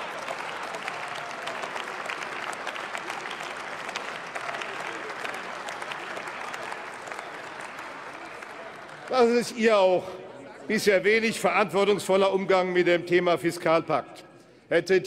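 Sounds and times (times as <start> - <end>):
many hands clapping: 0.0 - 9.6.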